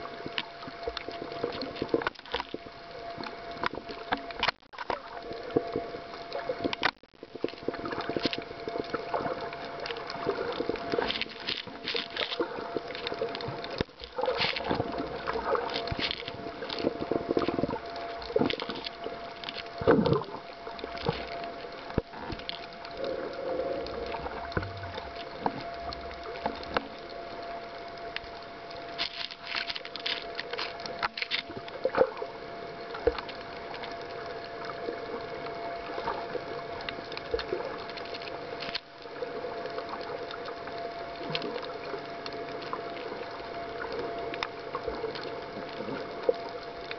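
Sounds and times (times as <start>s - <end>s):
faint steady hum: 0.0s - 46.9s
underwater water sloshing and bubbling: 0.0s - 46.9s
sharp underwater clicks and knocks: 0.2s - 23.2s, 23.8s - 27.5s, 28.1s - 32.3s.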